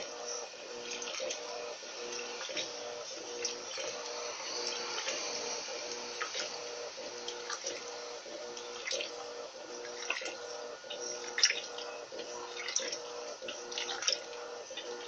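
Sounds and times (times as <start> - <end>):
washing machine motor humming: 0.0 - 15.0
water sloshing: 7.3 - 8.0, 9.8 - 14.9.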